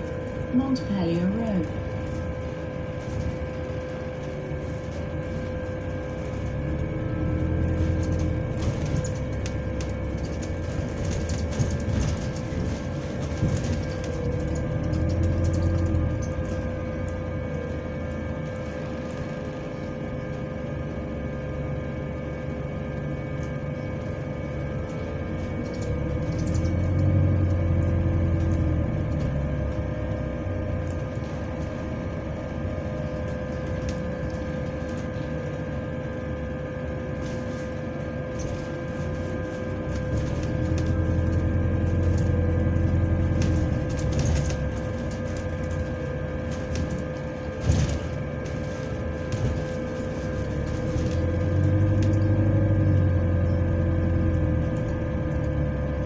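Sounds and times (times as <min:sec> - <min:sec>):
bus fan whining: 0:00.0 - 0:56.0
low drivetrain rumble: 0:00.0 - 0:56.0.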